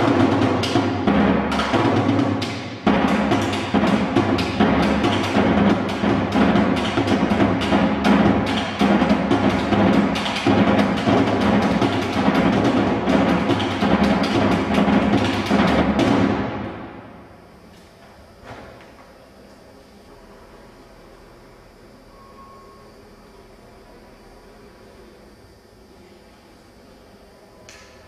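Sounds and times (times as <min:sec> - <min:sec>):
drums in driving rhythm: 0:00.0 - 0:16.8.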